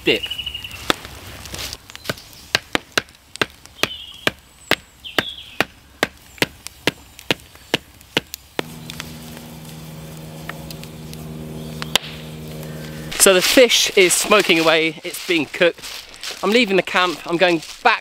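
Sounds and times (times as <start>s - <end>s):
steady low hum: 8.6s - 14.4s
stick hammered into ground: 11.8s - 12.2s.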